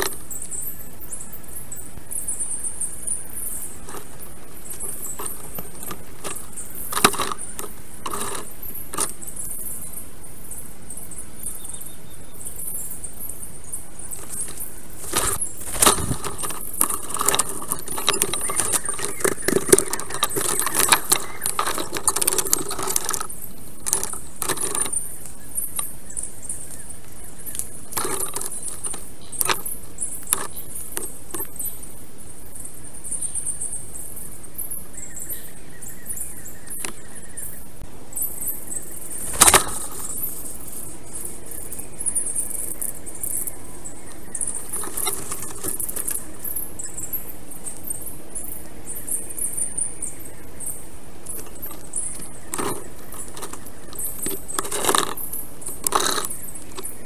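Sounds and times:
twigs clicking and rattling: 0.0s - 0.8s, 3.0s - 9.5s, 14.0s - 31.9s, 38.7s - 48.1s, 51.2s - 57.0s
constant high hiss: 0.0s - 57.0s.

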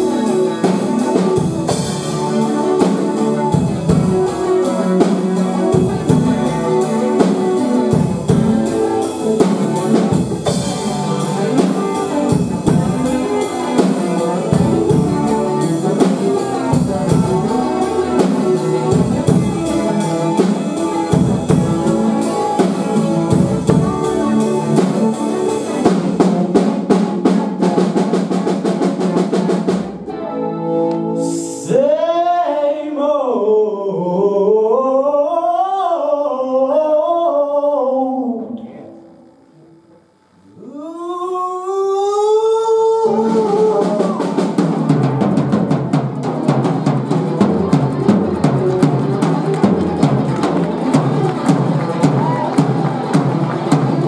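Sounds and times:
drum kit: 0.0s - 30.3s, 43.1s - 54.0s
electric guitar: 0.0s - 31.8s, 43.1s - 54.0s
young man singing: 31.0s - 38.9s, 40.5s - 44.6s.

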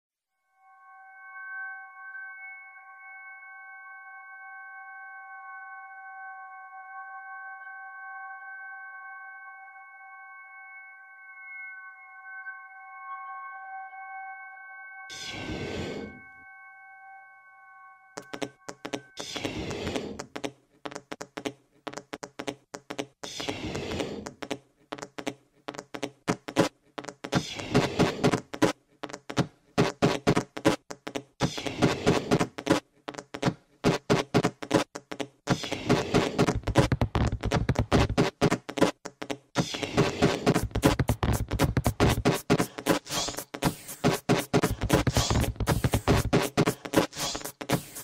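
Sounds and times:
electronic music with clicks: 15.1s - 16.2s, 18.2s - 48.0s.

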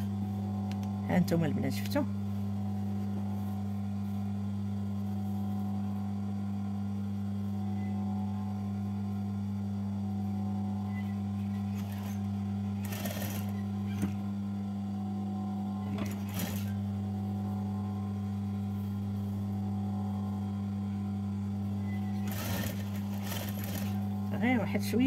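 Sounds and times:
sewing machine motor humming: 10.7s - 14.3s, 15.4s - 17.6s, 21.8s - 24.5s.

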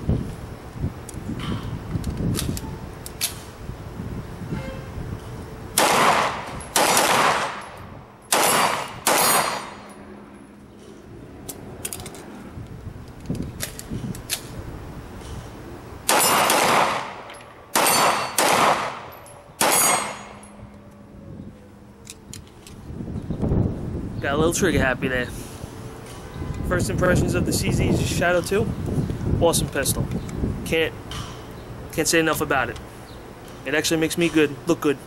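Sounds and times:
pistol shots: 5.8s - 9.8s, 16.1s - 20.4s.

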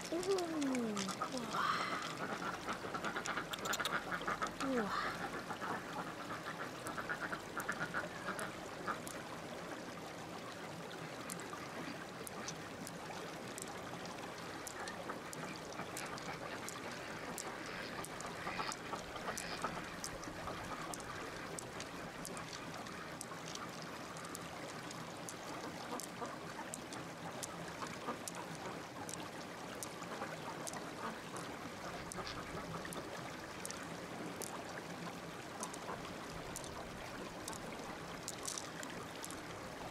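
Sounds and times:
pearls clicking together: 0.0s - 4.2s, 20.8s - 27.6s, 33.6s - 33.8s, 36.4s - 36.8s, 37.4s - 39.5s
running water hiss: 0.0s - 39.9s.

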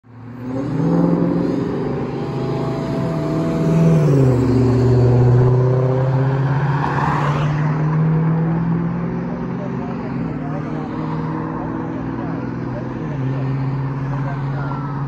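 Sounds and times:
engine humming: 0.1s - 6.8s
car passing by: 1.0s - 11.6s.

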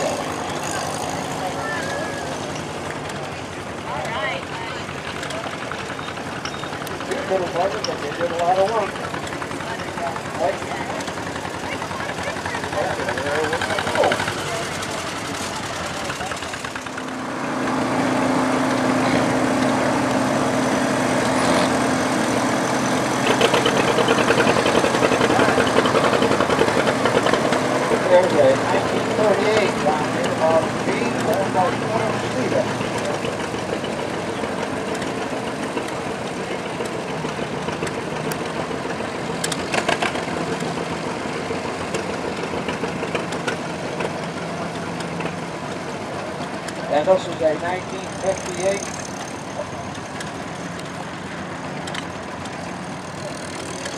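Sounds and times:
tractor engine running: 0.0s - 53.9s
clicks and clatter: 51.8s - 53.9s.

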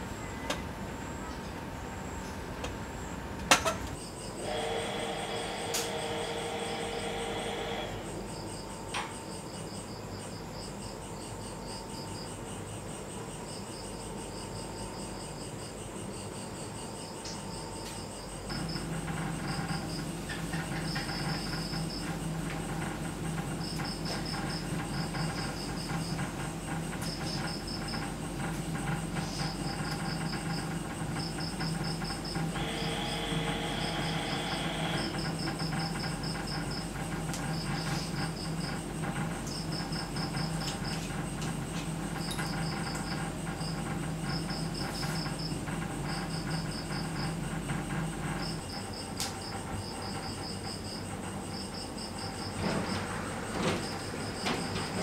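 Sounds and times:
crickets chirping: 0.0s - 55.0s
steady low hum: 0.0s - 55.0s.

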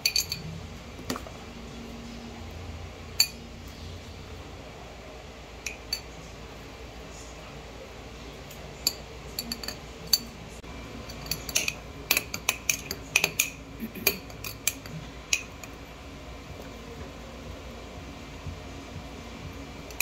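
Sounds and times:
spoon clinking in glass jar: 0.0s - 0.5s, 3.2s - 3.4s, 5.7s - 6.2s, 8.8s - 10.4s, 11.0s - 15.8s.

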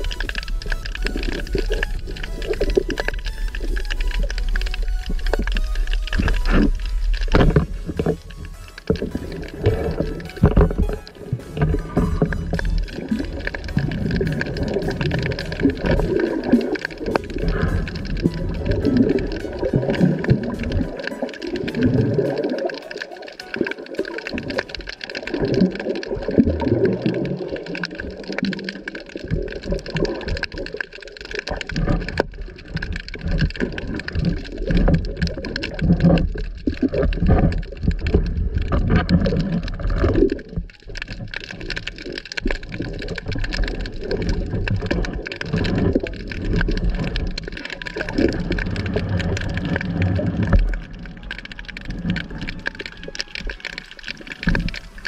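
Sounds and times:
low rumbling and gurgling: 0.0s - 22.8s, 24.3s - 55.0s
underwater water wash: 0.0s - 55.0s.

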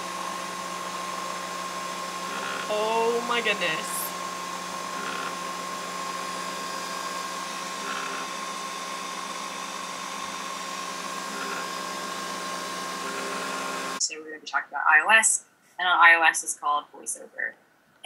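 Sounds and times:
coffee machine whirring hum: 0.0s - 14.0s
thin whine of coffee streaming: 0.0s - 14.0s.

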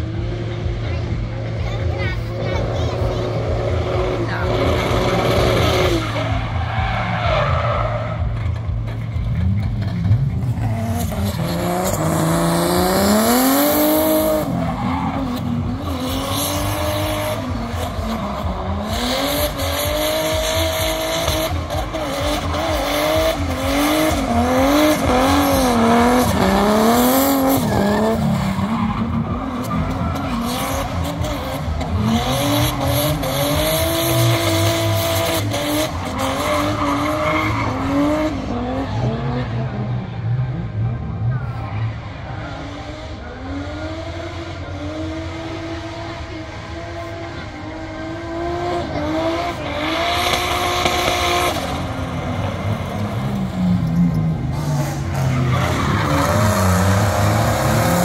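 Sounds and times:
car engine revving: 0.0s - 58.0s.

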